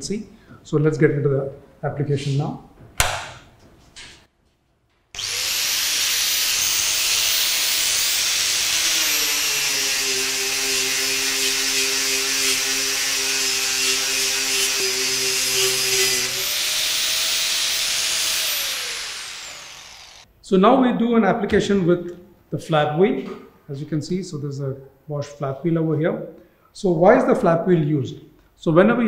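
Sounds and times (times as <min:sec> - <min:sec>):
angle grinder sanding metal: 0:05.2 - 0:20.3.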